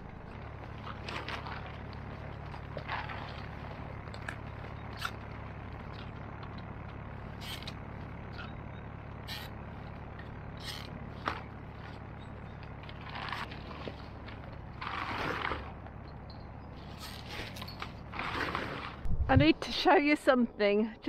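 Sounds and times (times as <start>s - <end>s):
low background rumble: 0.0s - 21.0s
twigs and plastic sack crackling: 0.3s - 9.2s, 11.1s - 16.0s.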